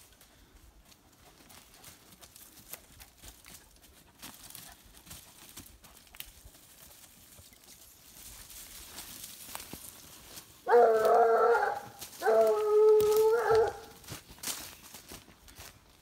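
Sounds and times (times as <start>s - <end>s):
footsteps crunching dry leaves: 0.8s - 16.0s
twigs snapping: 12.0s - 13.9s.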